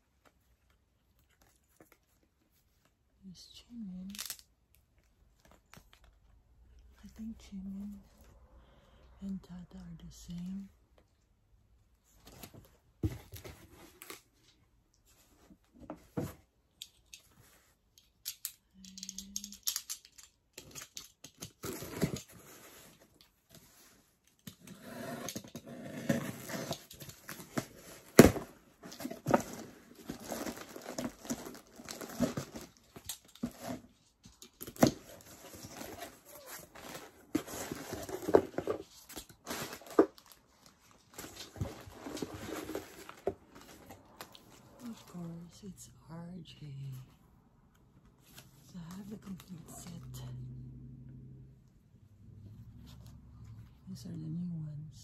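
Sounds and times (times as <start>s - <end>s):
cardboard and paper rustling: 12.0s - 16.6s, 19.2s - 45.4s.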